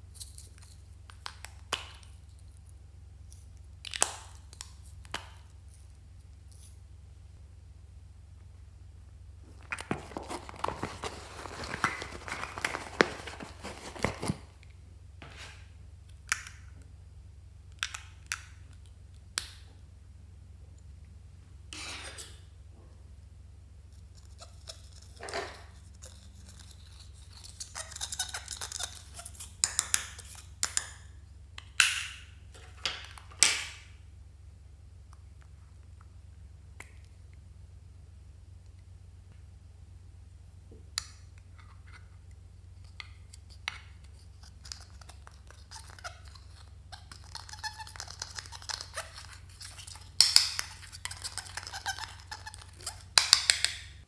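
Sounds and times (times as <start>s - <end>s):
vinyl pouch rustling: 9.5s - 14.6s
spatula scraping eyeshadow: 43.3s - 53.2s.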